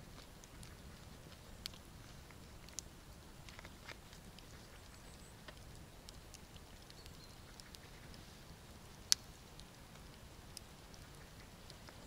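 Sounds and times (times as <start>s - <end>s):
small clicks and ticks: 0.0s - 12.0s.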